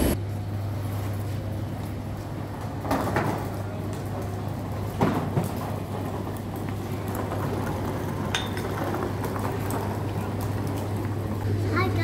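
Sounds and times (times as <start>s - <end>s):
steady rushing noise: 0.0s - 0.2s.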